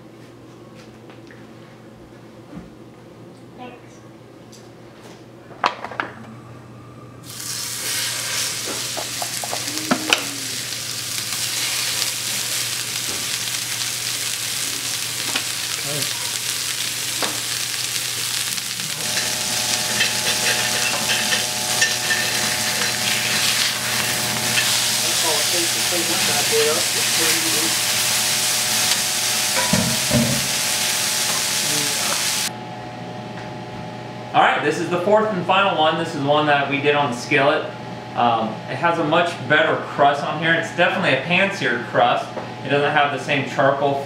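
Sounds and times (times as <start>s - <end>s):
burger patties sizzling in oil: 7.2s - 32.5s.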